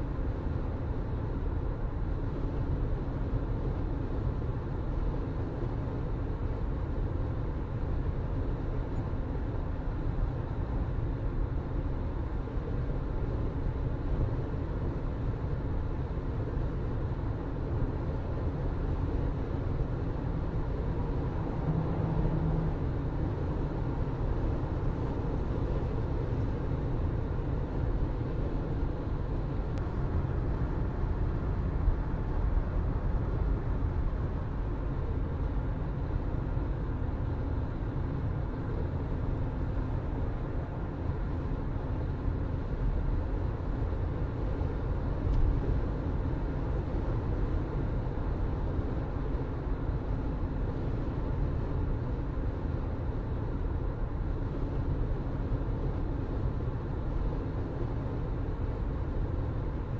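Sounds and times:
car engine hum: 18.1 - 41.4
tyres rumbling on road: 20.9 - 23.9.

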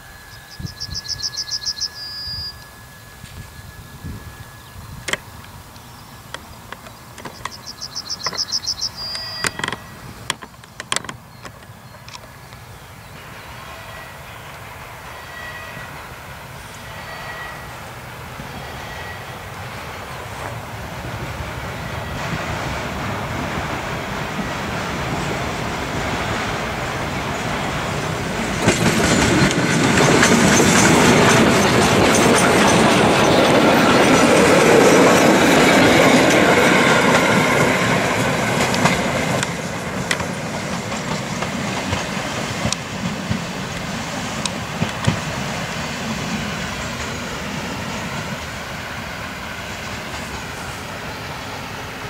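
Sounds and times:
steam train passing: 0.0 - 52.0
wheels clattering over rail joints: 5.0 - 12.4, 26.0 - 47.2.

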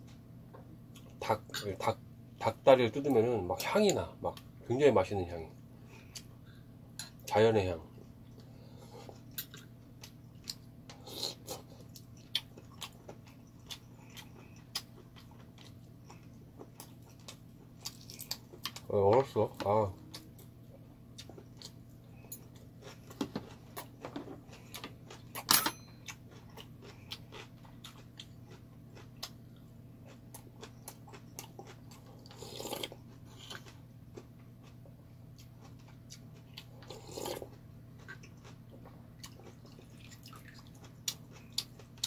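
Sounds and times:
faint steady hum: 0.0 - 42.0
man chewing: 8.0 - 18.9, 20.0 - 42.0.

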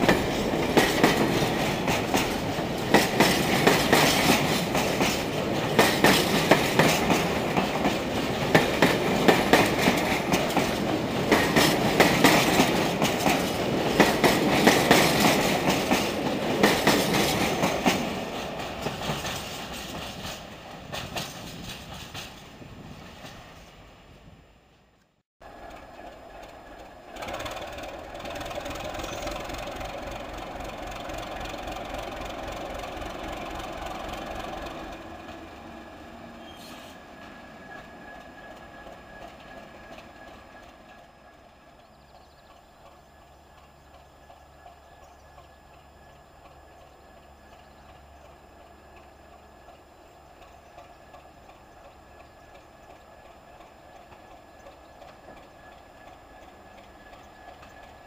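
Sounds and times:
diesel locomotive engine throbbing: 25.5 - 36.4.

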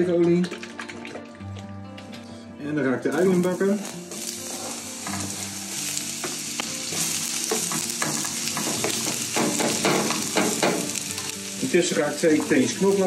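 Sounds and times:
onions sizzling in oil: 3.1 - 13.0.

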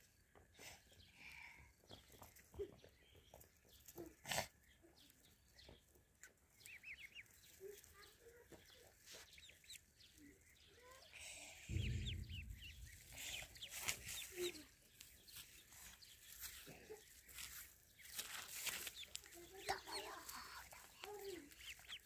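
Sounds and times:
ducklings peeping: 1.8 - 22.0
low rumble: 11.6 - 15.8.

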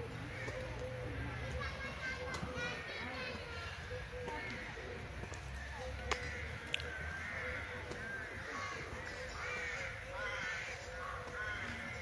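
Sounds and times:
crows cawing: 0.1 - 2.8, 4.1 - 5.1, 5.8 - 12.0.

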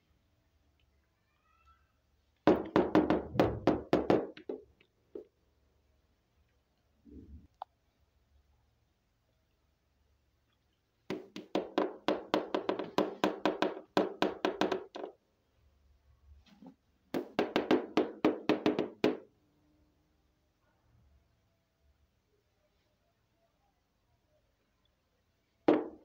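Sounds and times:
rapid sharp knocking: 2.5 - 4.6, 11.1 - 15.1, 17.2 - 19.2.

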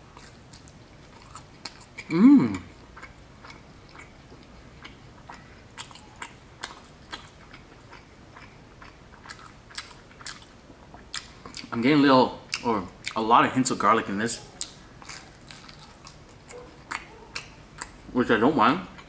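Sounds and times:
person chewing: 0.0 - 11.8, 12.5 - 13.2, 14.3 - 18.1
person humming: 2.1 - 2.7.

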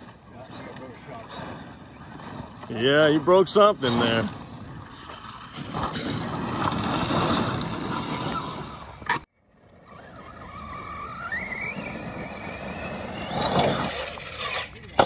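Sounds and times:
tyres spraying gravel: 0.0 - 9.0.

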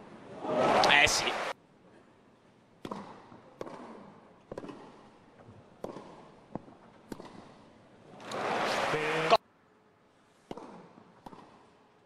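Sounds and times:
tennis ball pops: 2.8 - 5.0, 5.8 - 7.6, 10.5 - 11.6
hushed stadium crowd: 8.1 - 9.4.

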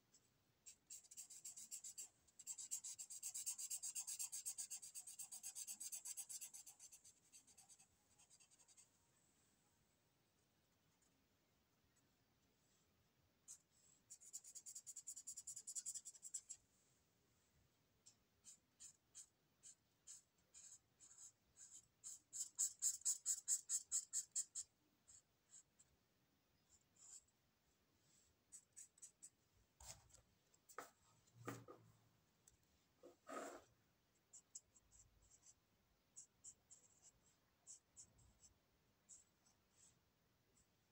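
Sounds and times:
pen scratching on paper: 0.6 - 8.9, 13.5 - 16.6, 18.4 - 25.9, 26.7 - 27.3, 33.0 - 33.7, 34.3 - 40.0.

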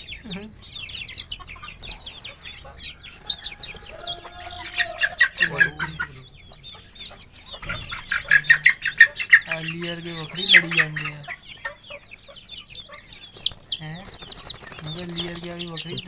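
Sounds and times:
chicks peeping rapidly: 0.0 - 16.0.

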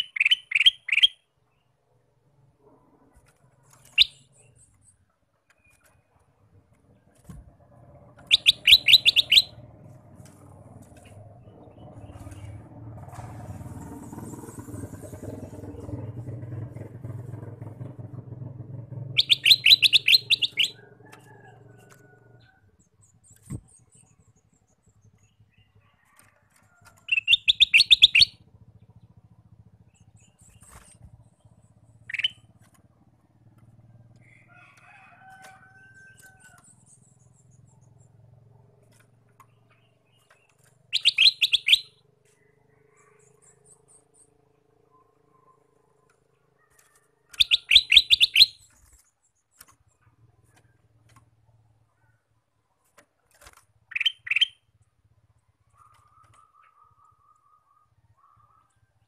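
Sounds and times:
bird calling rapid high notes: 0.0 - 1.3, 8.2 - 9.7, 19.1 - 20.8, 27.1 - 28.4, 40.9 - 42.0, 47.3 - 48.8, 53.9 - 54.7
bird single calls: 0.0 - 1.3, 8.2 - 9.7, 19.2 - 21.3, 27.0 - 28.4, 32.0 - 32.5, 39.7 - 44.3, 46.6 - 48.9, 53.8 - 54.8, 55.7 - 58.8
motor vehicle humming: 0.0 - 59.0.

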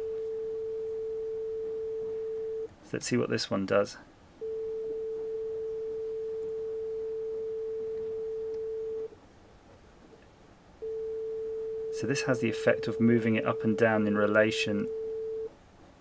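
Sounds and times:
sine test tone: 0.0 - 2.7, 4.4 - 9.1, 10.8 - 15.5.

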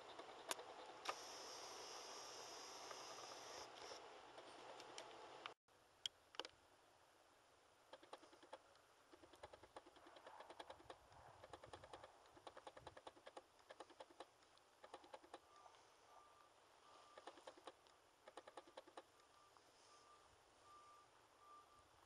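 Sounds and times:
faint rapid clicking: 0.0 - 1.8, 7.9 - 15.8, 17.1 - 19.4
faint high beep: 15.5 - 17.2, 19.3 - 22.0.

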